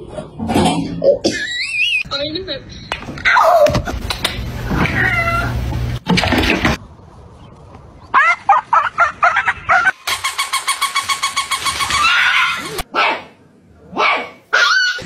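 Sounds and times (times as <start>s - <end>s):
cat meowing: 4.8s - 5.6s
dog barking rapidly: 11.6s - 13.4s, 14.0s - 15.0s.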